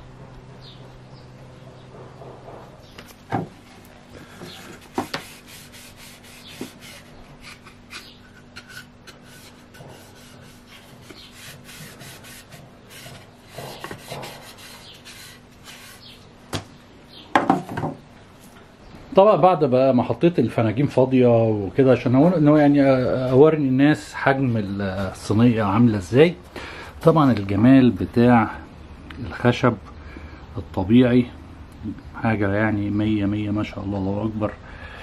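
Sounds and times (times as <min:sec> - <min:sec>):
rag wiping wood: 0:04.3 - 0:16.2.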